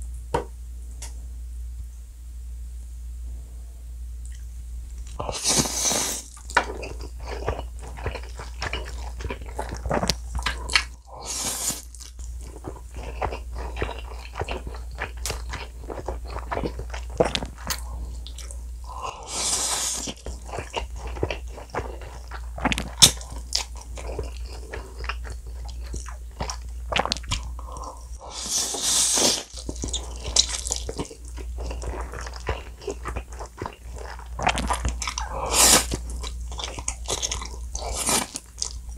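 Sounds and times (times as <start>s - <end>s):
wet chewing and smacking: 5.0s - 11.1s, 11.7s - 19.2s, 19.8s - 28.2s, 29.2s - 38.9s
loud noodle slurps: 5.3s - 6.3s, 19.2s - 20.2s, 28.3s - 29.5s, 35.5s - 36.0s.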